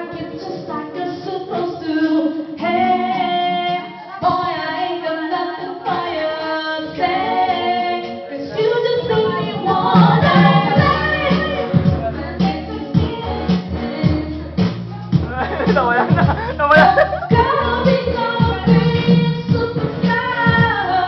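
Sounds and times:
women singing: 0.0s - 15.3s, 16.8s - 21.0s.

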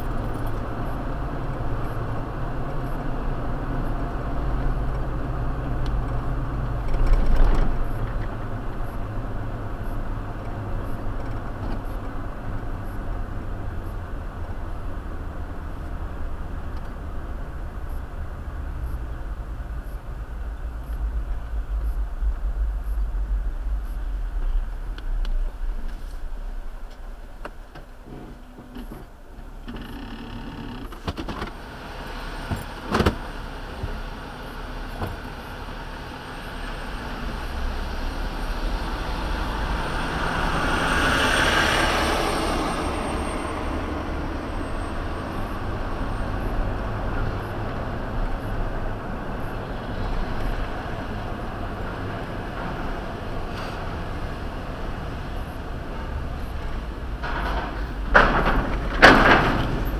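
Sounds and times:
steady low rumble: 0.0s - 29.7s, 31.5s - 59.9s
vehicle passing close: 31.5s - 59.9s.

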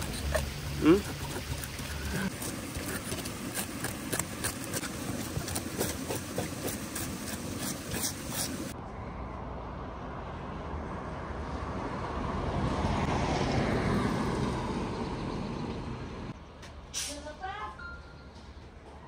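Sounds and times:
vehicle passing: 8.8s - 16.3s.

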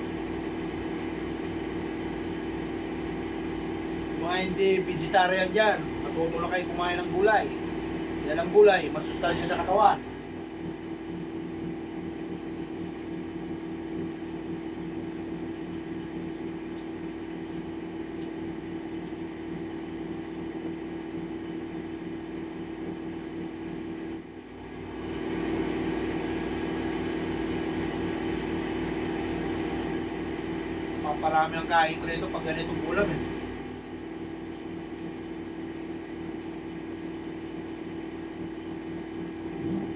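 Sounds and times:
electric motor humming: 0.0s - 31.3s.

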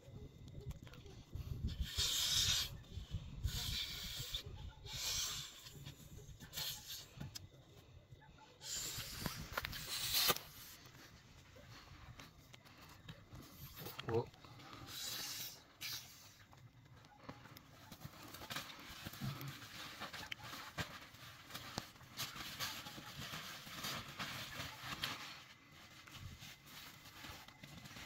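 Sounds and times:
hissing exhales into valve: 1.7s - 2.8s, 3.5s - 5.8s, 14.8s - 16.4s
plastic rustling: 17.2s - 28.0s.

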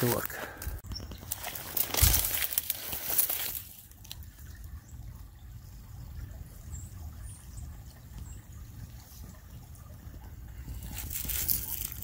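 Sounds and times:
footsteps rustling dry grass: 0.0s - 4.2s, 10.7s - 12.0s
creek trickling: 0.0s - 12.0s.

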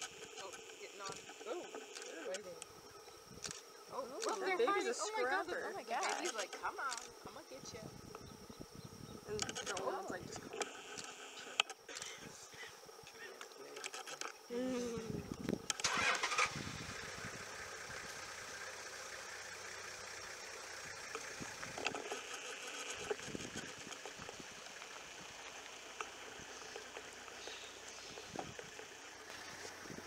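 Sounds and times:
vehicle engine idling: 15.2s - 30.0s
vehicle engine starting: 15.6s - 30.0s.

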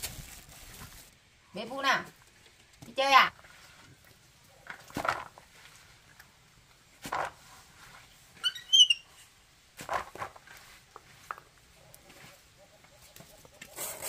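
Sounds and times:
rustling plant matter: 0.0s - 14.0s
monkey squeaking: 8.4s - 9.1s.

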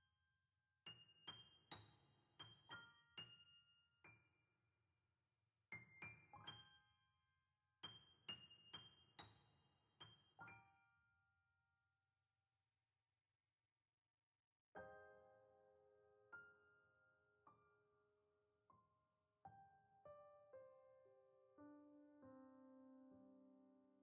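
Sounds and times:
faint solo piano melody: 0.8s - 4.5s, 5.7s - 11.2s, 14.8s - 24.0s.

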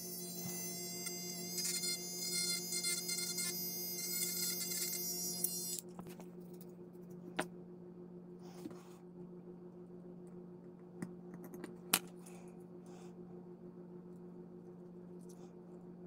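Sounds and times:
rotary tool whining: 0.0s - 6.0s
low steady hum: 0.0s - 16.0s.

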